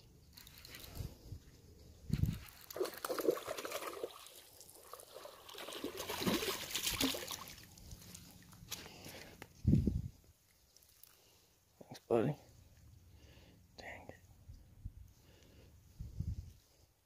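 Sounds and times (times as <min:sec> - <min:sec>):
fish splashing in water: 0:02.3 - 0:08.4.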